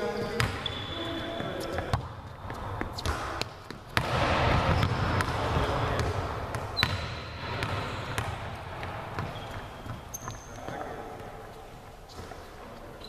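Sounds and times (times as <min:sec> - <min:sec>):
background movement in hall: 0:00.0 - 0:13.0
volleyball smacks: 0:02.9 - 0:09.3.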